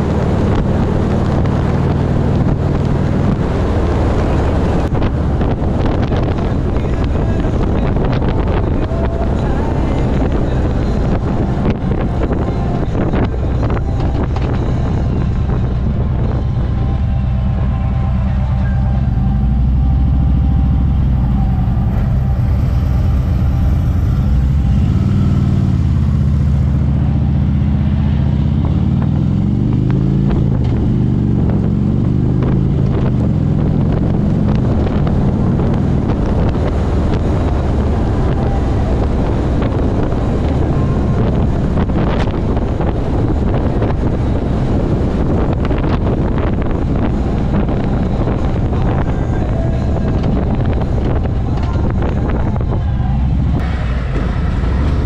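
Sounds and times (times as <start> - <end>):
motorcycle engine running: 0.0 - 55.0
wind rushing over microphone: 0.0 - 55.0.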